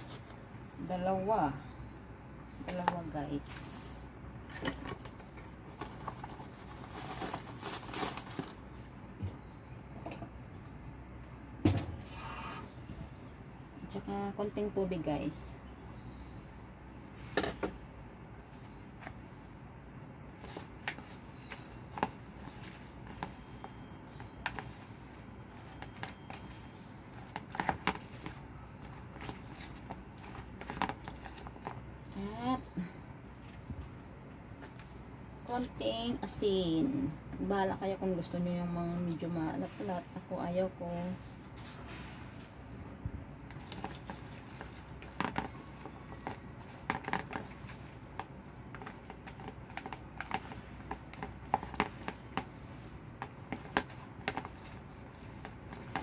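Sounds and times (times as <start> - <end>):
chopsticks stirring moist mix: 43.6 - 56.0.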